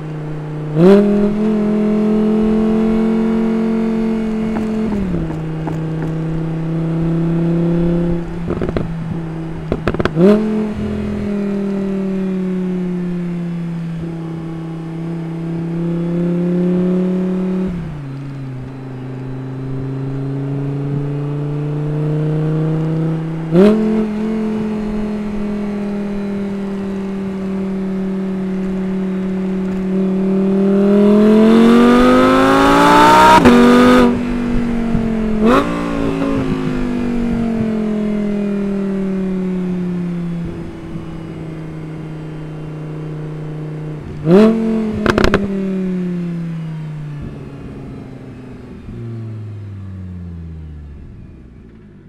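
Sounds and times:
sports car engine revving: 0:00.0 - 0:52.0
exhaust crack on downshift: 0:08.4 - 0:10.4, 0:44.9 - 0:45.5.

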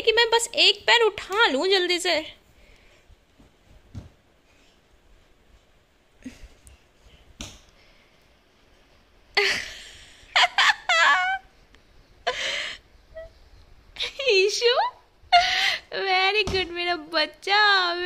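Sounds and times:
high-pitched laughter and squealing: 0:10.4 - 0:11.5.

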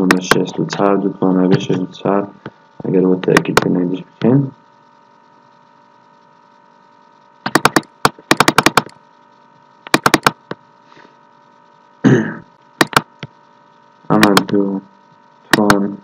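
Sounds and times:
faint electrical hum: 0:00.0 - 0:16.0
keyboard keystrokes: 0:07.4 - 0:08.9, 0:09.9 - 0:10.6, 0:12.8 - 0:13.3, 0:14.2 - 0:14.6, 0:15.5 - 0:15.8.

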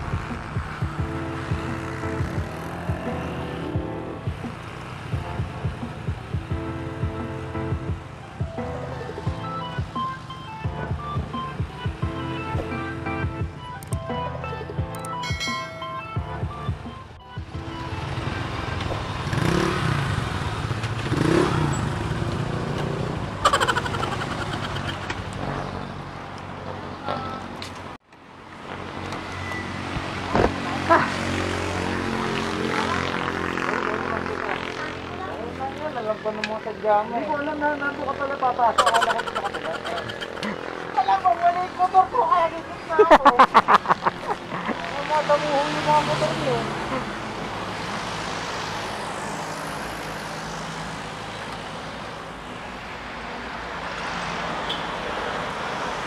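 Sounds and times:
motorcycle engine running: 0:00.0 - 0:12.3, 0:16.4 - 0:25.8
motorcycle engine drone: 0:00.0 - 0:27.6, 0:28.3 - 0:53.2
wind and road noise: 0:00.0 - 0:56.0.

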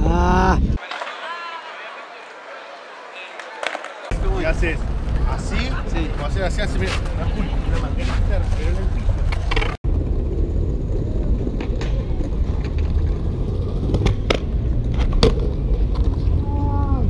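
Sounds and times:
skateboard wheels rolling on concrete: 0:00.8 - 0:17.0.

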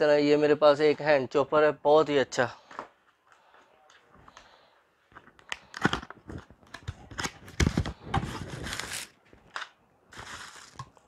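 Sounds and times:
packaging rustling: 0:05.3 - 0:11.0.

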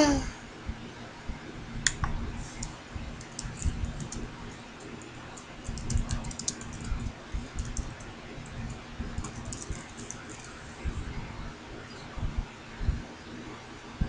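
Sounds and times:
typing on keyboard: 0:02.6 - 0:10.6.

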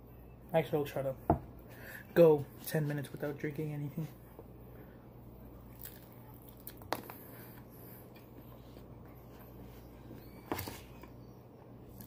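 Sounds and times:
person chewing: 0:05.7 - 0:08.4.

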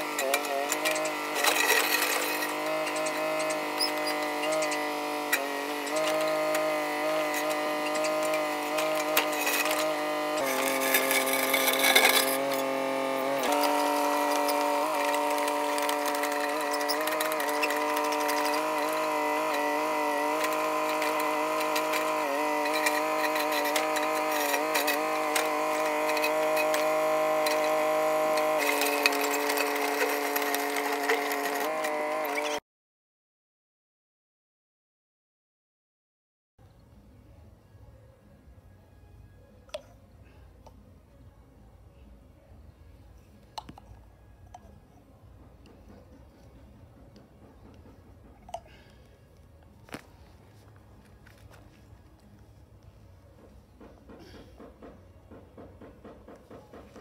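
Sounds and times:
bucket clanking and scraping: 0:00.0 - 0:04.6, 0:07.3 - 0:12.6
mini excavator engine and hydraulics: 0:00.0 - 0:32.6, 0:36.6 - 0:57.0.

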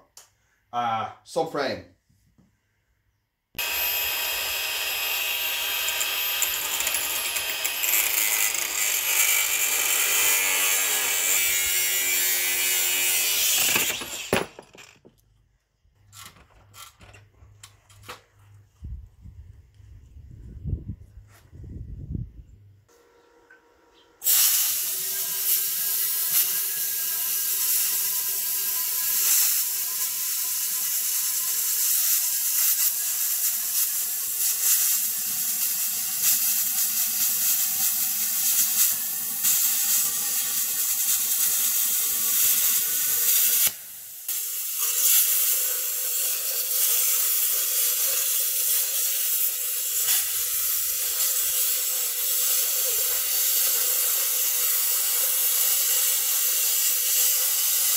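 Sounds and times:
plasma cutter hissing: 0:24.2 - 0:57.9.

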